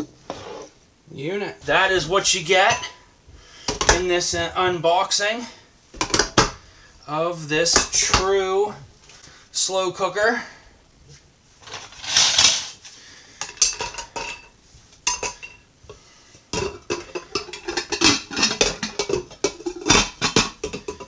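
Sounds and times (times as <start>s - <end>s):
glass lids clinking: 2.6s - 3.0s, 13.4s - 15.6s, 16.5s - 21.0s.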